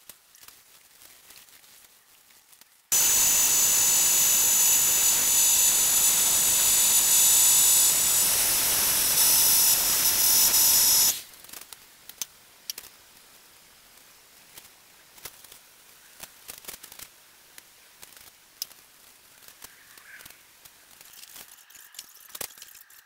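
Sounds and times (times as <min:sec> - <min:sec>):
paint spray gun hissing: 0:02.9 - 0:11.3.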